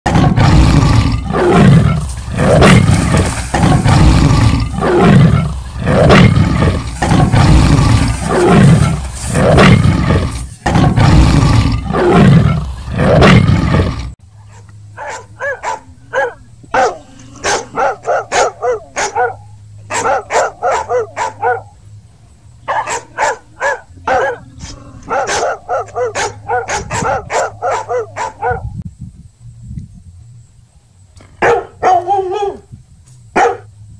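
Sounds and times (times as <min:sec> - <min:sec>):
animal roaring: 0:00.1 - 0:14.2
faint low hum: 0:00.1 - 0:33.9
dog barking: 0:14.4 - 0:21.7, 0:22.7 - 0:24.5, 0:25.1 - 0:28.7, 0:31.4 - 0:32.6, 0:33.4 - 0:33.7.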